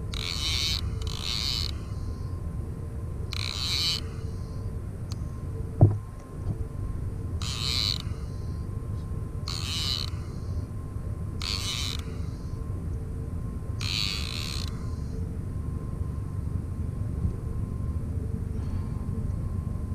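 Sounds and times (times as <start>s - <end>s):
fishing reel buzzing: 0.1s - 2.4s, 3.3s - 4.7s, 7.4s - 8.6s, 9.5s - 10.7s, 11.4s - 12.6s, 13.8s - 15.2s.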